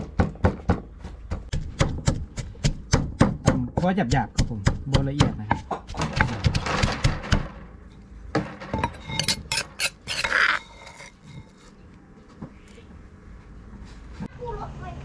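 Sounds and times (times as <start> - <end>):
wooden pestle knocking in mortar: 0.0 - 7.6
metal spoon scraping mortar: 8.8 - 11.8.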